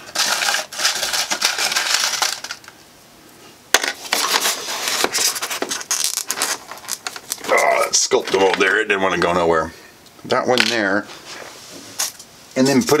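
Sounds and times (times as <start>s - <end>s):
styrofoam squeaking and crunching: 0.0s - 2.6s, 4.2s - 8.0s.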